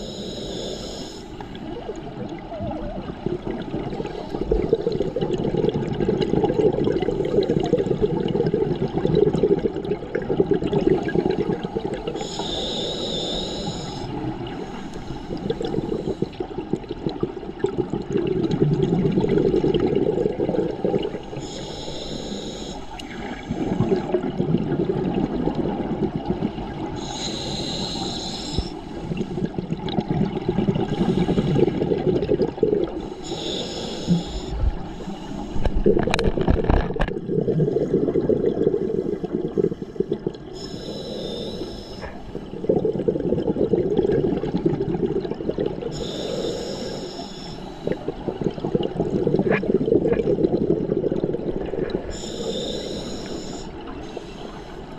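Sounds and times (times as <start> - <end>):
regulator inhale hiss: 0.0 - 1.7, 12.1 - 16.5, 21.2 - 24.1, 27.0 - 29.6, 30.9 - 31.9, 33.0 - 35.8, 38.8 - 42.6, 45.9 - 48.2, 52.0 - 54.9
exhaled bubbles rushing: 1.5 - 12.4, 14.1 - 21.5, 23.0 - 28.1, 29.0 - 33.4, 34.1 - 46.6, 47.8 - 52.7.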